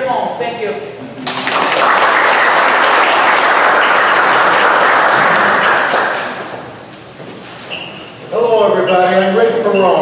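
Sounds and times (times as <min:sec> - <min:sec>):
audience applauding: 0:01.2 - 0:06.7.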